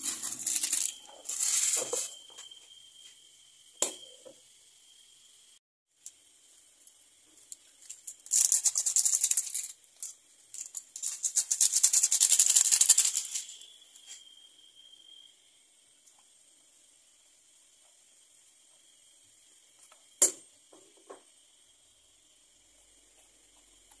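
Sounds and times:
foil sachet crinkling and rattling: 0.0s - 2.1s, 7.8s - 13.6s.

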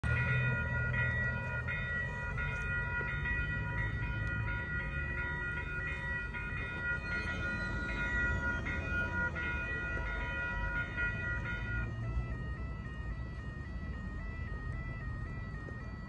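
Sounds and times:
level crossing warning bells: 0.0s - 16.0s.

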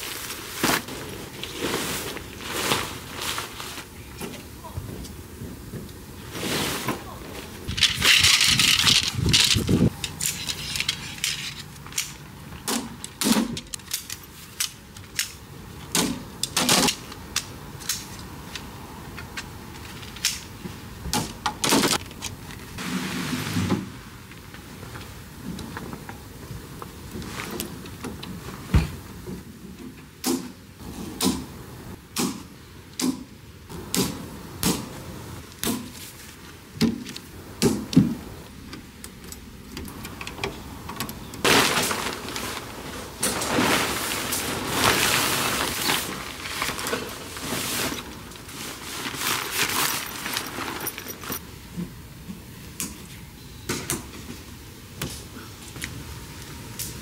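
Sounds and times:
rustling: 0.0s - 5.1s, 41.4s - 51.4s.

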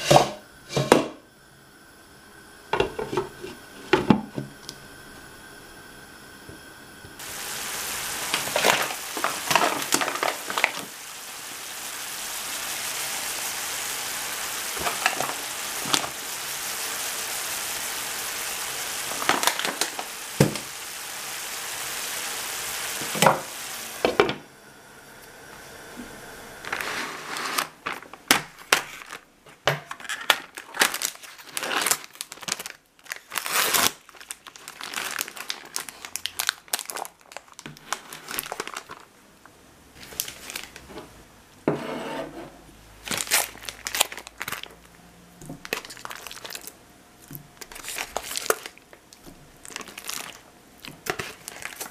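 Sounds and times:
vegetables sizzling in a frying pan: 0.0s - 29.2s, 29.8s - 39.2s, 39.8s - 42.0s, 42.7s - 51.9s
plastic film crinkling: 7.2s - 11.1s, 14.5s - 17.4s, 18.3s - 20.8s, 26.7s - 39.2s, 40.0s - 40.9s, 43.0s - 46.8s, 47.6s - 51.9s.

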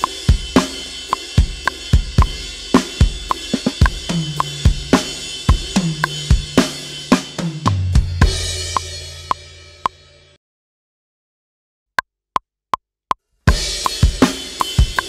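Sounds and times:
rock drum groove: 0.0s - 10.0s, 13.5s - 15.0s.

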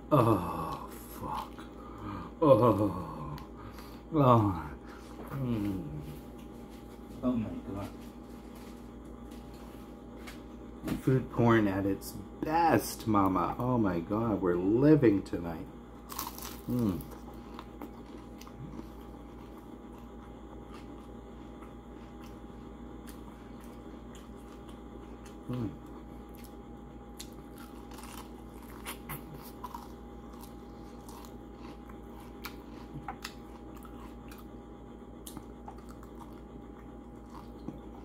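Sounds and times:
person humming: 0.0s - 6.2s, 16.7s - 17.1s, 25.5s - 25.9s
steady background hum: 0.0s - 38.0s
chewing crispy food: 16.0s - 38.0s.

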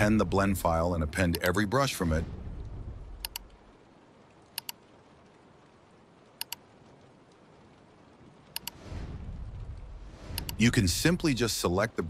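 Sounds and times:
faint hiss: 0.0s - 12.0s
computer mouse double-clicks: 3.2s - 3.4s, 4.6s - 4.8s, 6.4s - 6.6s, 8.6s - 8.8s.

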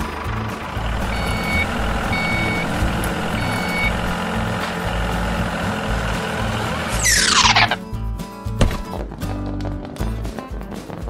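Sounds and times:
heavy vehicle engine running: 0.0s - 7.9s
reversing alarm beeping: 1.0s - 4.2s.

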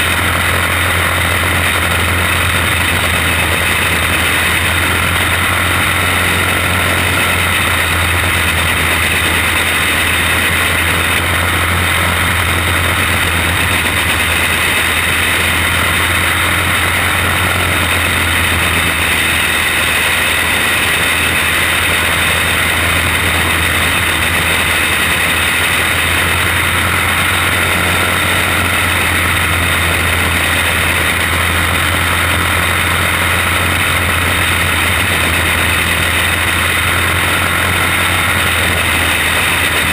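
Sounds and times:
kart engine droning: 0.0s - 39.9s.

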